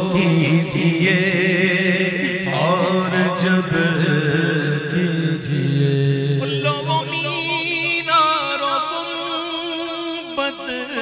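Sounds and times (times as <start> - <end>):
man singing: 0.0 - 11.0.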